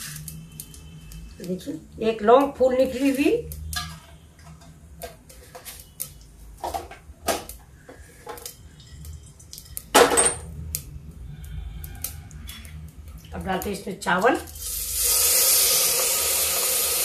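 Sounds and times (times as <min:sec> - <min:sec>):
low steady hum: 0:03.4 - 0:15.0.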